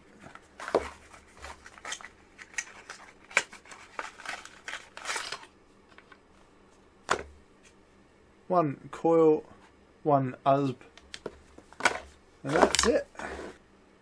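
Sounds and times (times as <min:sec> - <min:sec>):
cardboard packaging rustling: 0:00.0 - 0:06.2, 0:11.6 - 0:13.5.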